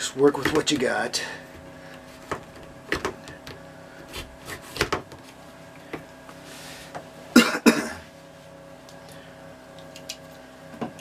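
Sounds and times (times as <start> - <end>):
vinyl hose handled on wood: 0.4 - 3.6.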